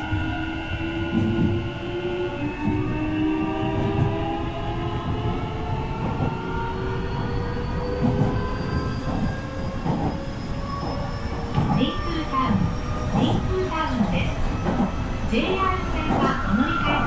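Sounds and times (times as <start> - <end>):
train wheels rumbling on track: 0.0 - 17.0.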